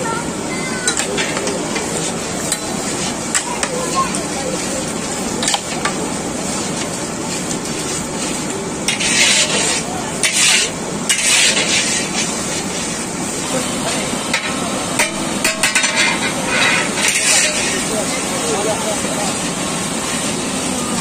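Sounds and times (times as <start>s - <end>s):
food sizzling: 0.1s - 21.0s
ladle stirring swishes: 1.7s - 13.4s.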